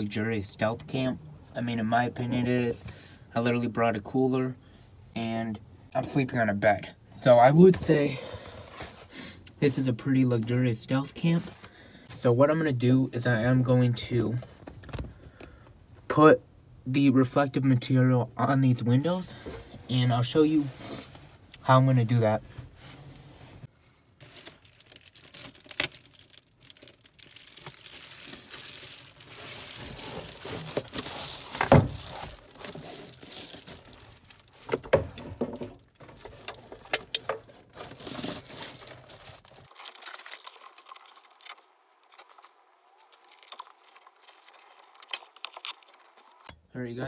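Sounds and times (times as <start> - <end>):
foil insulation crinkling: 24.2 - 46.5.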